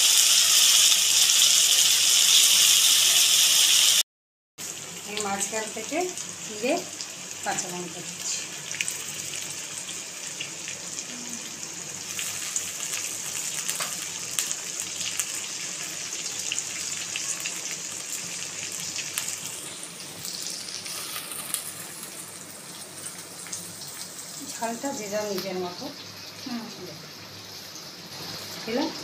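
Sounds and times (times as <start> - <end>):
oil sizzling and crackling: 0.0 - 4.0, 4.6 - 29.0.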